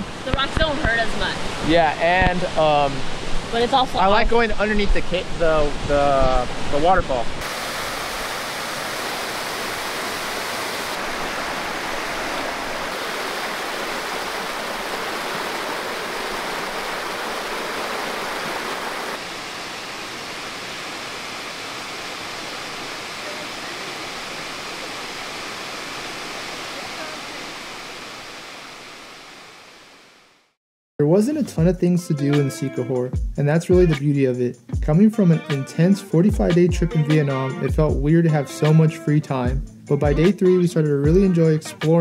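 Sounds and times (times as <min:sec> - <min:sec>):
waterfall rushing into pool: 0:00.0 - 0:30.5.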